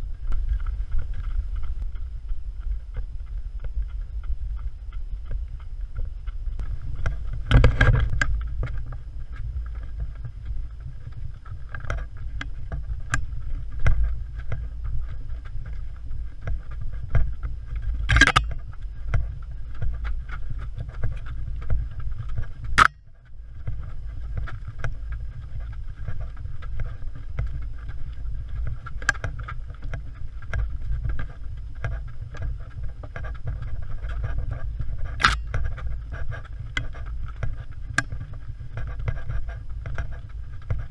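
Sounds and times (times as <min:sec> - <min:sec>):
wind rumble: 0:00.0 - 0:40.9
sharp click: 0:18.1 - 0:18.5, 0:35.2 - 0:35.6.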